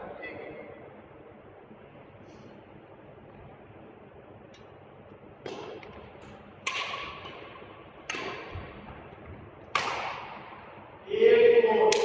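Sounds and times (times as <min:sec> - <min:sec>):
rackets hitting shuttlecock: 0:05.4 - 0:10.9.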